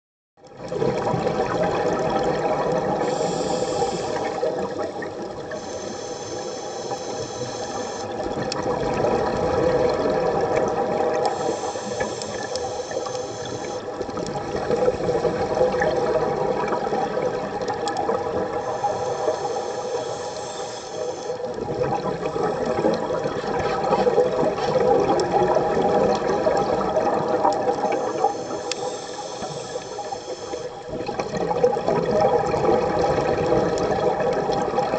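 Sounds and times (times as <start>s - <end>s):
exhaled bubbles rushing: 0.5s - 5.6s, 8.1s - 20.2s, 21.3s - 28.6s, 30.7s - 34.9s
regulator inhalation hiss: 3.0s - 4.7s, 5.5s - 8.2s, 11.3s - 13.9s, 18.6s - 21.5s, 27.8s - 30.9s.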